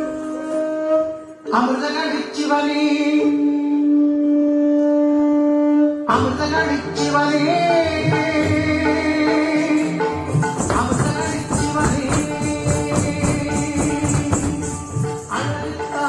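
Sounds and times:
wind instrument long note: 0.0s - 1.7s, 3.2s - 6.4s
drums and instruments playing: 7.9s - 16.0s.

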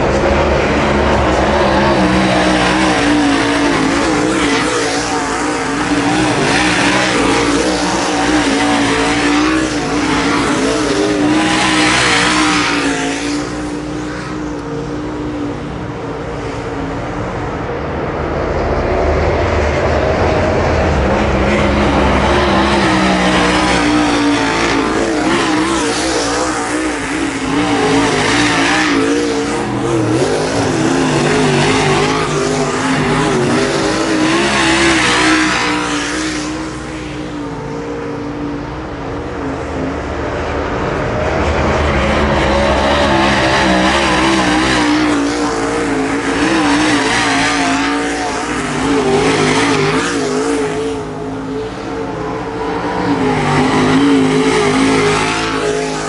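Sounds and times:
race car engines racing past: 0.0s - 56.0s.

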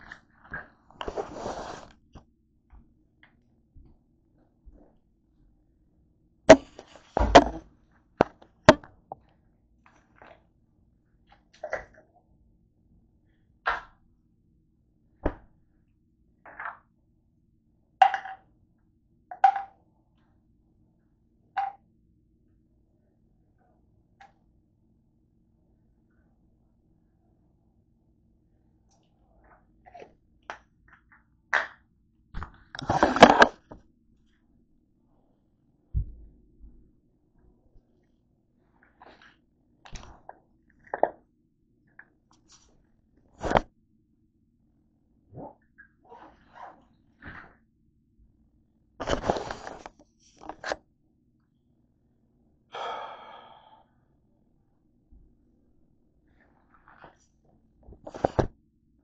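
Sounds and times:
fabric and bag rustling: 1.0s - 1.9s.

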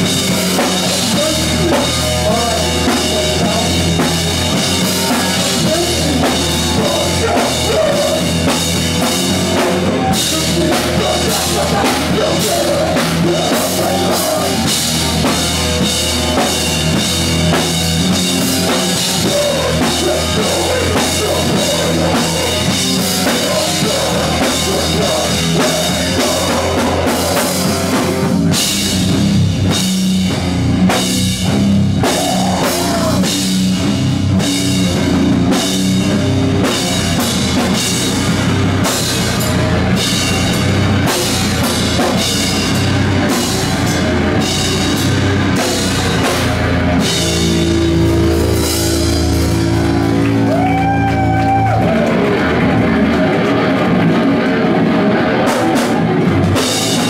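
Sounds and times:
rock band playing loudly: 0.0s - 57.0s.

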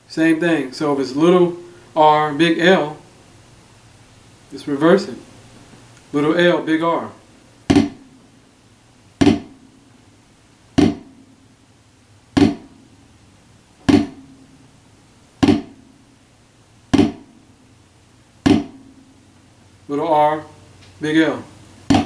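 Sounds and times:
drumsticks hitting a practice pad: 7.7s - 8.1s, 9.2s - 9.6s, 10.8s - 11.2s, 12.4s - 12.8s, 13.8s - 14.4s, 15.4s - 15.9s, 16.9s - 17.4s, 18.4s - 19.0s.

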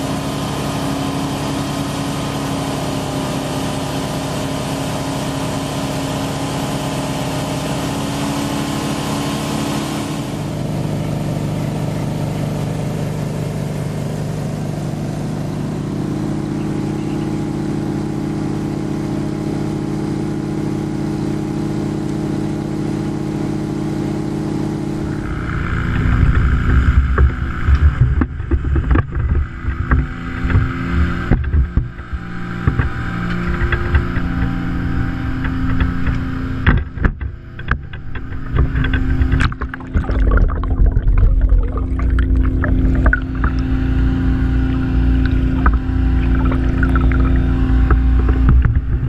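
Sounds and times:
engine running steadily: 0.0s - 49.0s
uneven low rumbling: 24.9s - 49.0s.

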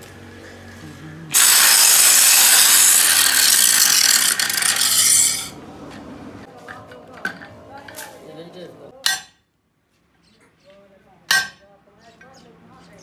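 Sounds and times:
angle grinder grinding metal: 1.3s - 5.6s.

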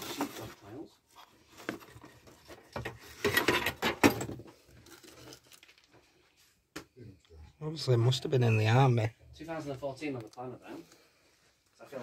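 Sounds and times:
paper cards crinkling and rustling: 4.6s - 6.4s.

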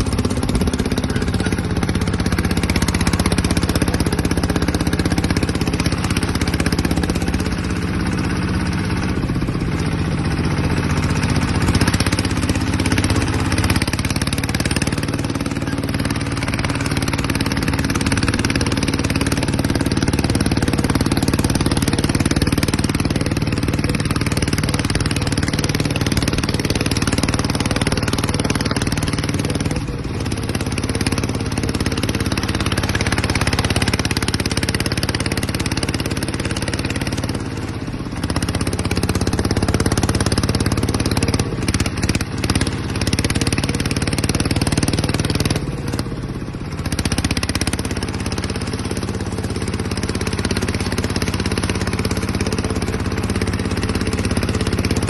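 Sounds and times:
diesel tractor engine running: 0.0s - 55.0s.

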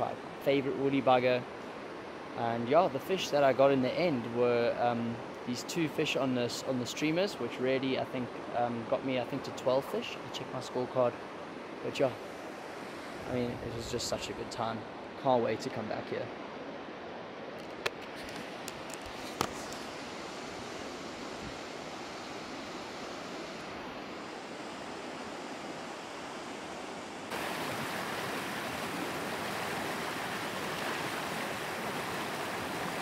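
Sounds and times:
river water rushing: 11.1s - 14.2s, 16.4s - 33.0s.

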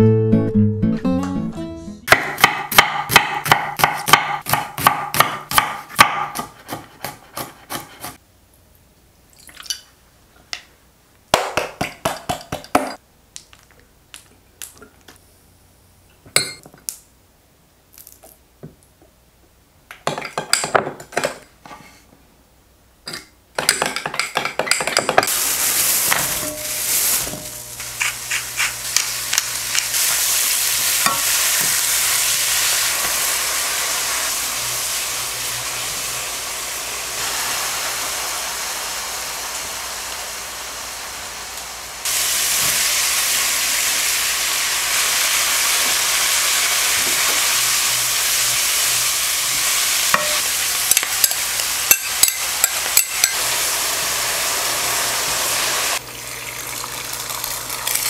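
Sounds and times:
meat sizzling in a pan: 25.3s - 58.0s.

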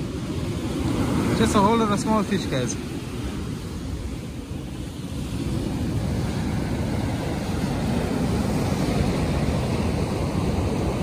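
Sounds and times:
surf breaking on beach: 0.0s - 11.0s
wind buffeting microphone: 0.0s - 11.0s.

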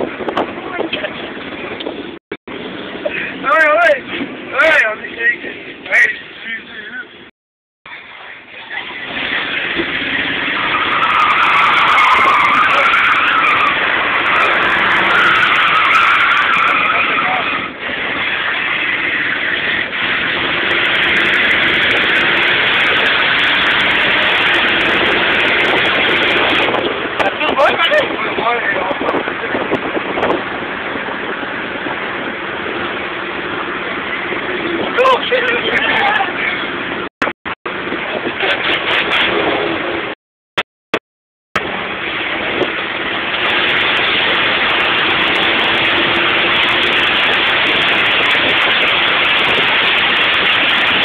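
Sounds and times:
engine road and wind noise: 0.0s - 51.0s
car tires squealing: 8.5s - 37.0s.

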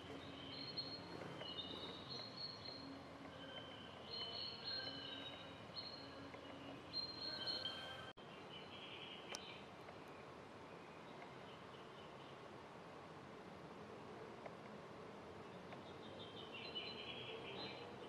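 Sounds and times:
faint music of high held notes: 0.0s - 9.4s.

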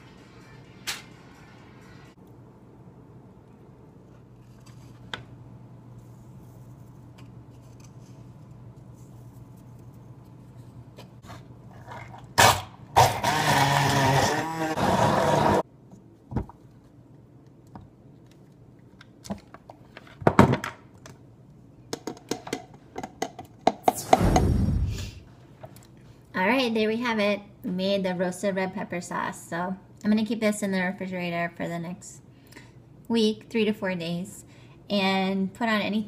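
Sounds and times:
immersion blender running: 13.0s - 15.6s.

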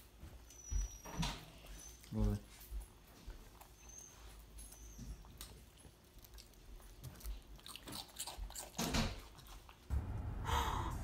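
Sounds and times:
child chewing: 2.9s - 9.9s.

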